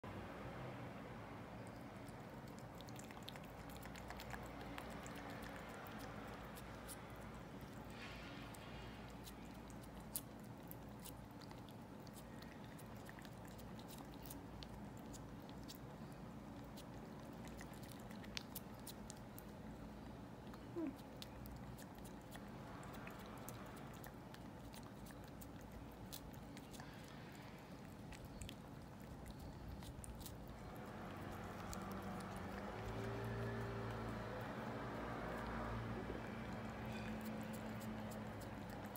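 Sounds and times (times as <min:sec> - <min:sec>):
cat licking wet tongue clicks: 0:01.6 - 0:07.9, 0:20.4 - 0:38.9.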